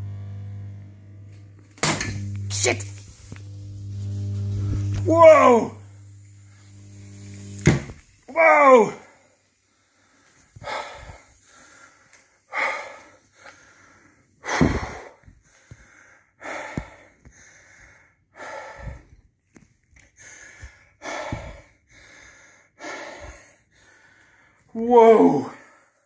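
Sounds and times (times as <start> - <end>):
man breathing hard: 9.6 - 19.3, 20.0 - 24.7, 25.5 - 26.0.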